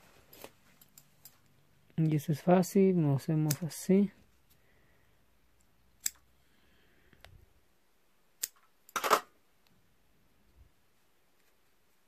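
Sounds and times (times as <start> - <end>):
scissors clicking: 3.4 - 3.7, 6.0 - 6.2, 8.4 - 8.6
scissors clattering on table: 8.4 - 9.3.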